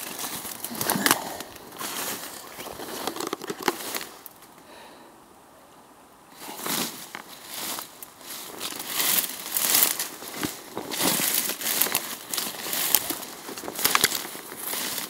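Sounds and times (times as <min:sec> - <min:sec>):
undergrowth crackling and rustling: 0:00.0 - 0:04.6, 0:06.3 - 0:15.0.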